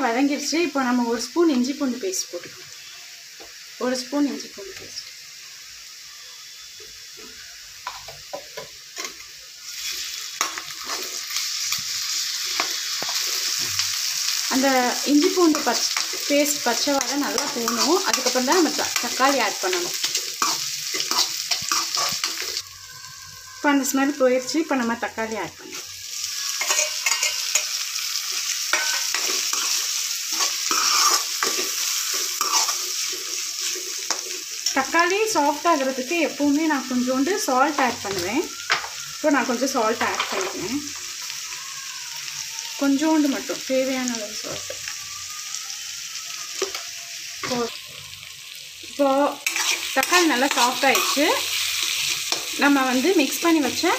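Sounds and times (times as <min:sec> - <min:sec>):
oil sizzling: 0:00.0 - 0:53.9
metal spoon scraping a pan: 0:07.8 - 0:14.4, 0:15.0 - 0:22.6, 0:25.6 - 0:35.9, 0:49.4 - 0:53.8.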